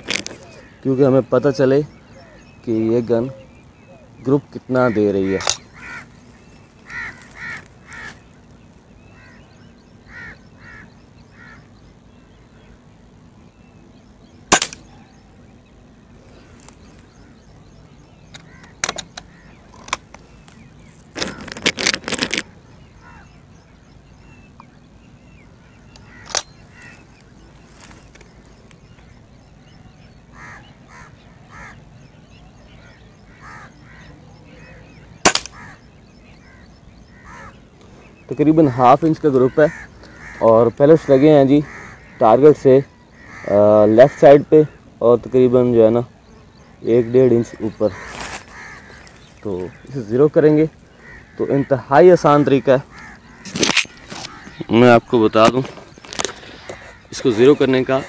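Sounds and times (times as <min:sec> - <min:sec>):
birds calling: 0:00.0 - 0:58.0
air rifle shots: 0:14.5 - 0:14.9, 0:35.2 - 0:35.7
rifle barrel clicks and clatter: 0:18.3 - 0:20.2, 0:21.2 - 0:22.5, 0:26.0 - 0:26.5, 0:53.5 - 0:54.3.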